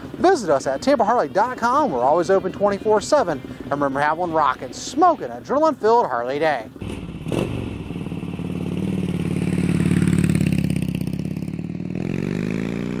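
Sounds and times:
motorcycle engine revving: 0:06.7 - 0:13.0.

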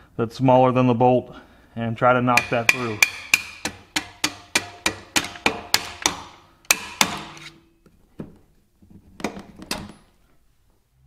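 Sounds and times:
hammer striking screwdriver: 0:02.4 - 0:07.6.

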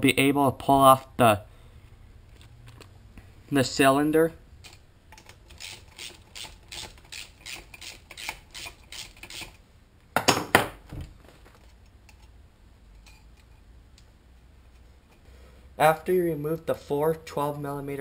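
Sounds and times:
socket ratchet clicking: 0:04.6 - 0:09.6.

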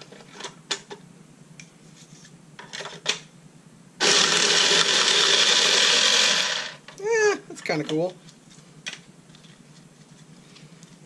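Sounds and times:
card shuffler motor whirring: 0:04.0 - 0:06.8.

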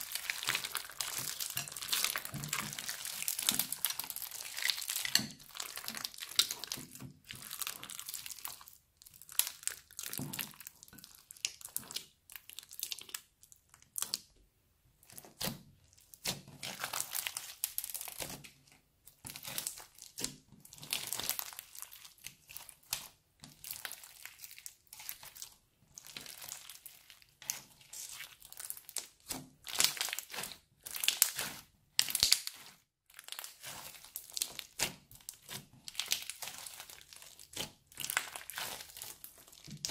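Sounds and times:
crunchy slime squeezed by hand: 0:19.2 - 0:39.9.

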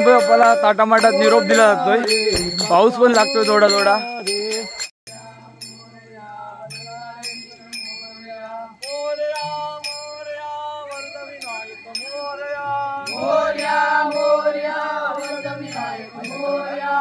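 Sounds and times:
metallic strikes: 0:02.1 - 0:03.0.

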